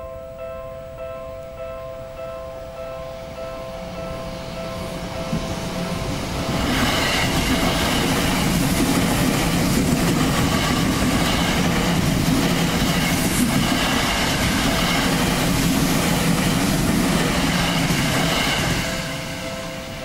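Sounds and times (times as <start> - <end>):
crossing warning bell ringing: 0.0 - 20.0
train wheels rushing on rails: 4.2 - 20.0.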